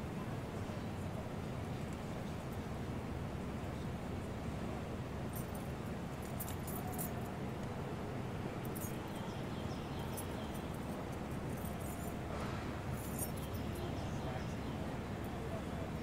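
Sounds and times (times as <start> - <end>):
city street rumble: 0.0 - 16.0
faint high clinks: 5.3 - 7.4, 8.6 - 14.6.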